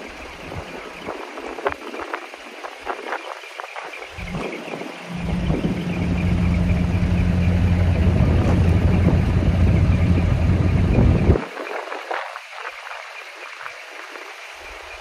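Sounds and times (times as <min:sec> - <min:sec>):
diesel truck engine idling: 0:04.2 - 0:11.4.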